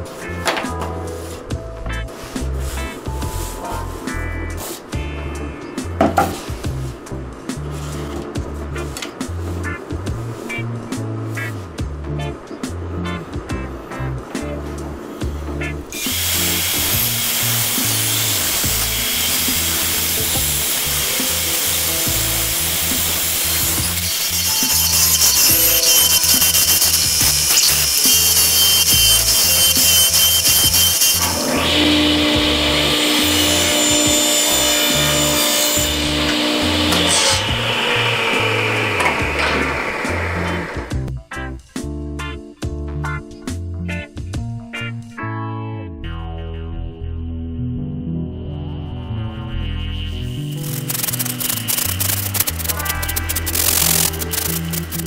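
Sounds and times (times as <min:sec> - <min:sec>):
background music: 0:00.0 - 0:55.0
bandsaw cutting plywood: 0:15.9 - 0:41.0, 0:49.9 - 0:55.0.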